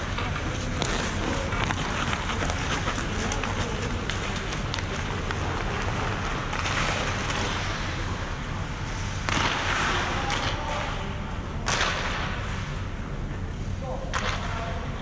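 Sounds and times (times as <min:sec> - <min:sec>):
ice skate blades scraping: 0:00.3 - 0:08.1.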